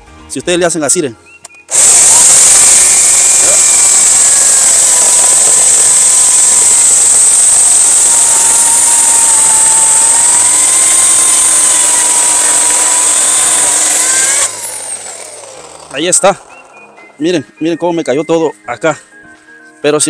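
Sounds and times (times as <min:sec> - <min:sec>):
electric chainsaw cutting log: 0:01.7 - 0:17.0.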